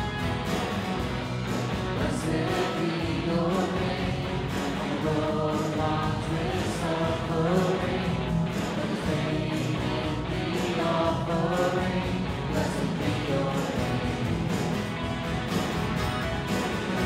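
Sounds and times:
drum kit with cymbals: 0.0 - 17.0
electric guitar: 0.0 - 17.0
strummed acoustic guitar: 0.0 - 17.0
voices singing together: 1.8 - 14.6.

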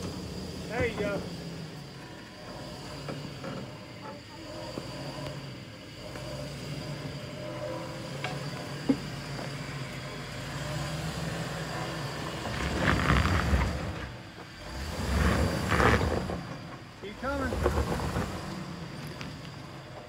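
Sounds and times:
engine and tyre surges: 0.0 - 20.0
engine running low: 0.0 - 20.0.

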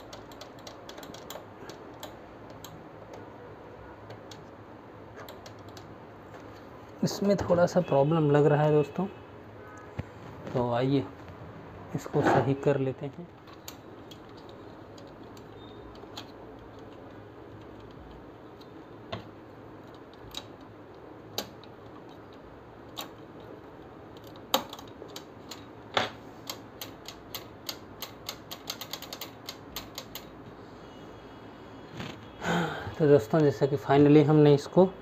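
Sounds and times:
small tool clicking on printer parts: 26.4 - 30.4.

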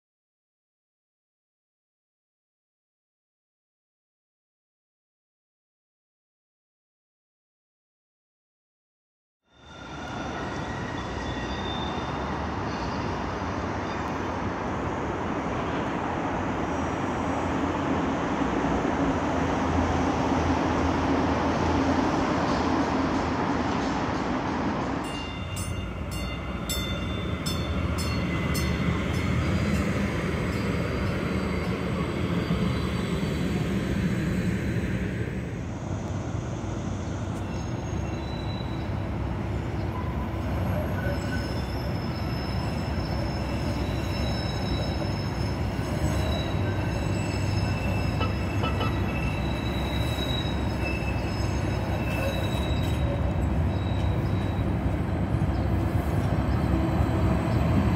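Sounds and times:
electric train hum: 9.8 - 57.9
wheel squeal: 37.4 - 39.0, 40.7 - 54.7.

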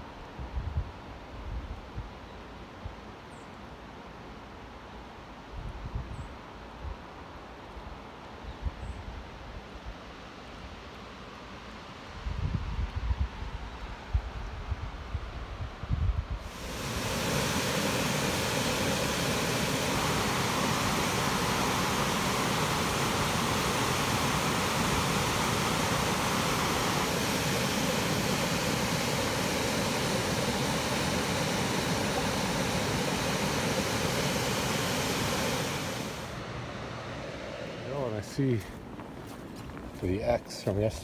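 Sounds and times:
waterfall rushing: 16.5 - 36.5.

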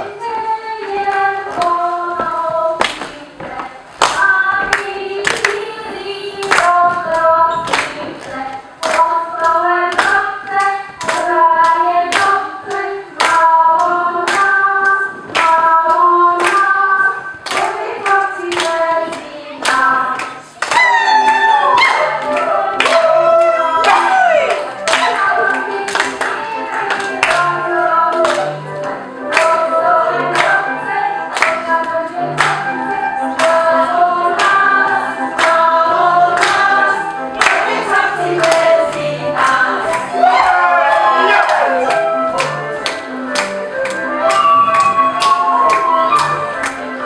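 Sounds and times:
group singing folk dance song: 0.0 - 47.0
hand claps: 2.8 - 3.2, 4.0 - 5.6, 6.4 - 6.8, 7.7 - 15.6, 16.4 - 16.7, 17.4 - 23.1, 23.8 - 27.5, 28.1 - 29.6, 31.3 - 32.6, 36.4 - 36.7, 37.4 - 38.7, 41.4 - 46.9.

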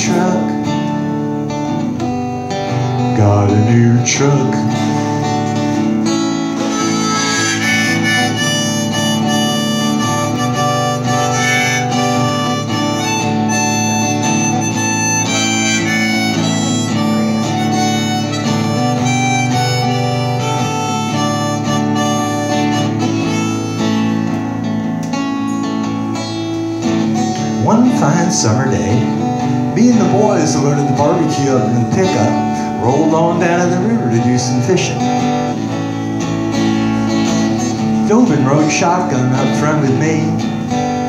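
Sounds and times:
strummed acoustic guitar: 0.0 - 41.0
harmonica solo: 4.7 - 41.0.

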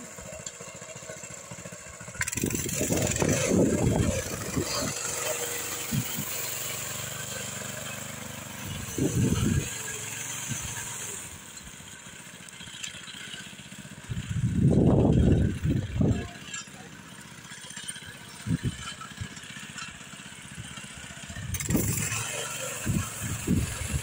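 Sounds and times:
small engine running: 0.0 - 24.0.

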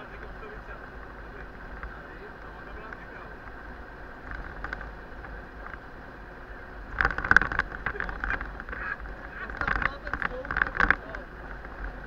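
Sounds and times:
vehicle road hum from inside cab: 0.0 - 12.0
sharp rattles and knocks: 4.2 - 5.9, 6.9 - 12.0.

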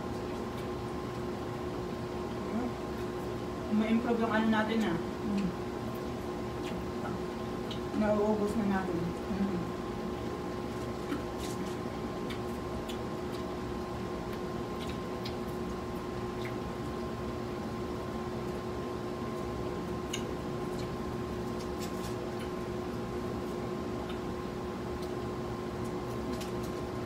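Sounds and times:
chewing and squishing food: 0.0 - 27.0
steady hum with tones: 0.0 - 27.0.

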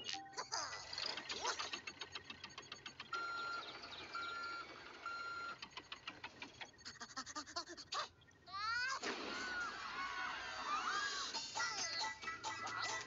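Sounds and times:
short beeps: 0.0 - 0.5.

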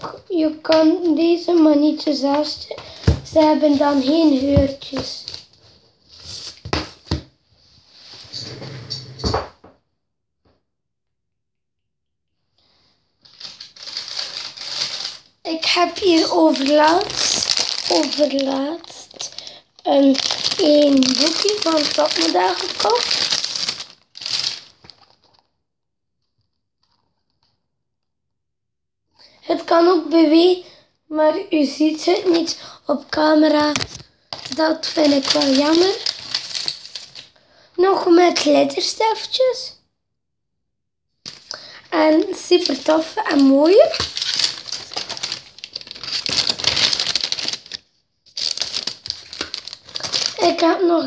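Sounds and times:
rustling and shuffling of objects: 0.8 - 9.4, 13.2 - 25.5, 33.4 - 37.4, 41.3 - 51.0.

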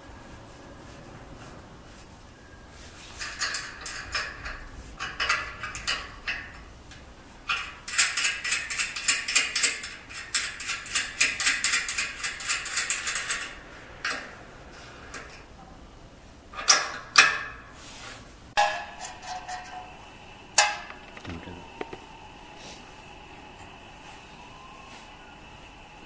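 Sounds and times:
metal clicking and rattling: 3.2 - 14.3, 20.6 - 22.0.

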